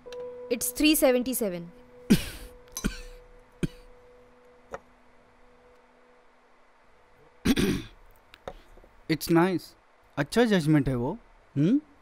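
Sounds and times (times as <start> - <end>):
faint steady tone: 0.0 - 8.9.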